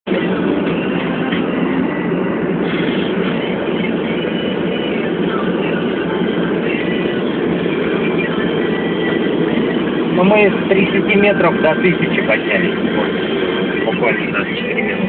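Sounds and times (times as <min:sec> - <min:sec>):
road and engine noise in vehicle cabin: 0:00.0 - 0:15.0.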